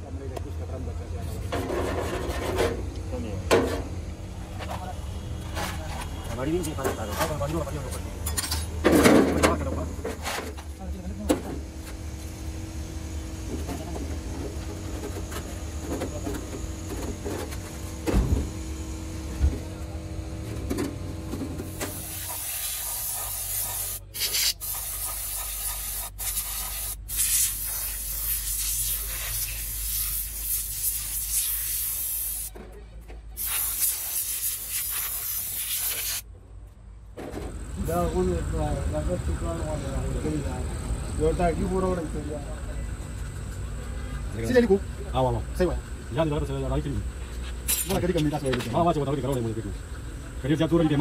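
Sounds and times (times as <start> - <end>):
steady low hum: 0.0 - 51.0
spray gun hissing: 21.7 - 32.5, 33.4 - 36.2.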